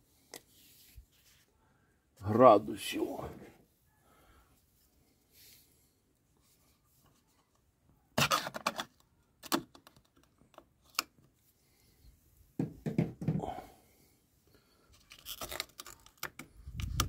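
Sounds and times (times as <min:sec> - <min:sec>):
foil seal crackling and tearing: 0:15.0 - 0:16.4.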